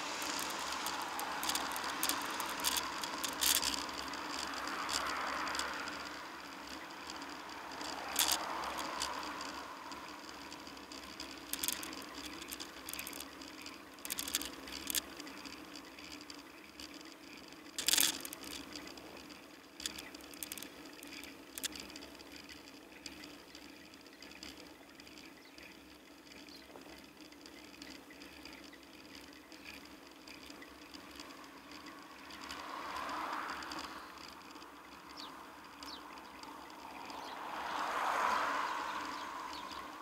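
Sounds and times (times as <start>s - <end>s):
car traffic: 0.0s - 28.4s, 29.7s - 40.0s
bicycle rattling over bumps: 0.0s - 40.0s
bicycle tyre hum: 0.0s - 40.0s.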